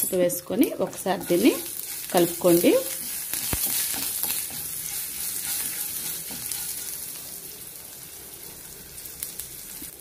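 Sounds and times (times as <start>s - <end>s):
spices sizzling in hot oil: 0.0s - 10.0s
spatula stirring in pan: 0.8s - 7.2s.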